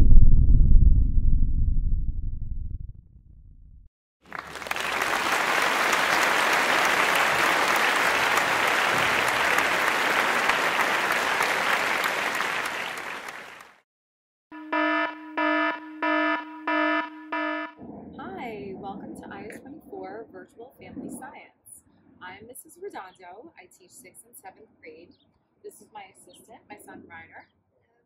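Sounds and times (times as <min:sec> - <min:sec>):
recorded applause: 0:04.2 - 0:13.8
buzzy electronic alarm beeping: 0:14.5 - 0:17.8.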